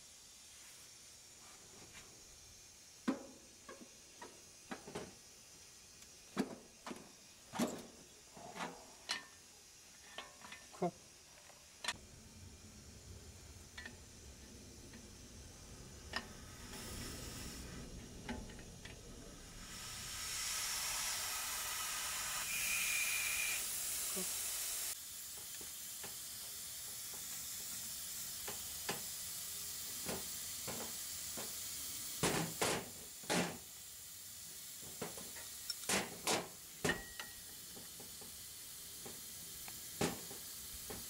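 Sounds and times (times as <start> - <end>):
gas hissing from a fitting: 0.0 - 41.0
wrench clinking on metal pipes: 9.0 - 9.4, 36.8 - 38.0.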